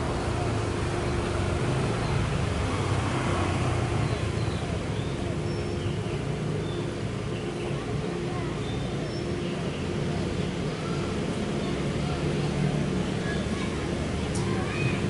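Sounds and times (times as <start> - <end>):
distant road traffic rumble: 0.0 - 15.0.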